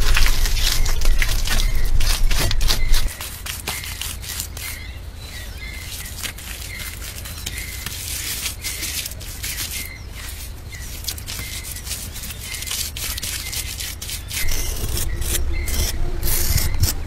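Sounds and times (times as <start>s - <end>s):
squelchy mud being packed: 0.0s - 4.9s, 5.7s - 15.8s
low rumble: 14.4s - 17.0s.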